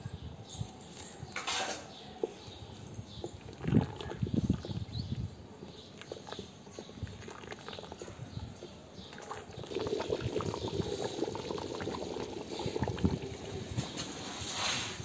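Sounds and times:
curry bubbling and popping: 2.2 - 15.0
ladle stirring pot: 5.6 - 15.0.

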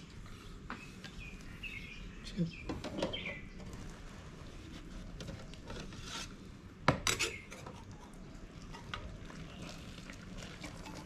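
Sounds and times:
metal ladle scraping jug: 4.7 - 6.4
water pouring into jug: 8.0 - 11.0.

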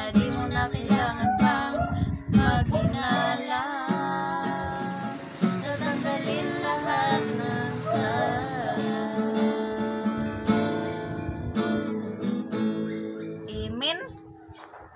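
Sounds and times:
women singing: 0.0 - 11.2
acoustic guitar strumming: 0.0 - 13.8.

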